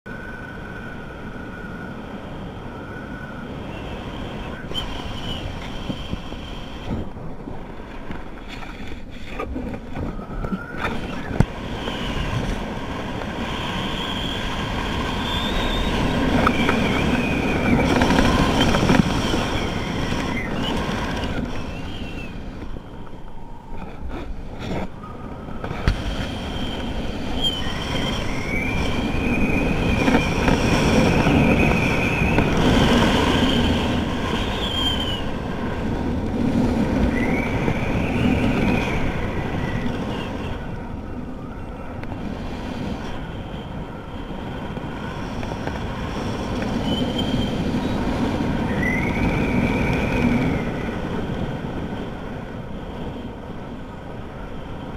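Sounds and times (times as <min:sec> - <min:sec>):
wind rushing over microphone: 0:00.1 - 0:54.9
thin wavering whistle: 0:02.6 - 0:06.9, 0:13.4 - 0:23.8, 0:24.9 - 0:25.7, 0:26.4 - 0:32.5, 0:33.2 - 0:35.4, 0:37.0 - 0:42.0, 0:46.8 - 0:50.9.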